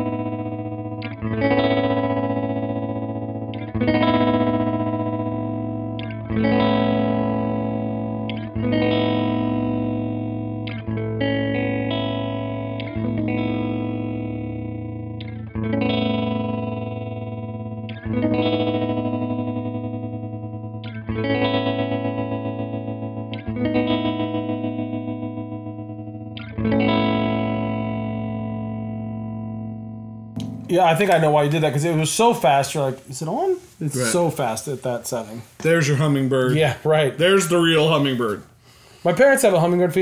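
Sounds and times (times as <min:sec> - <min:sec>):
electric guitar chords with tremolo: 0:00.0 - 0:31.4.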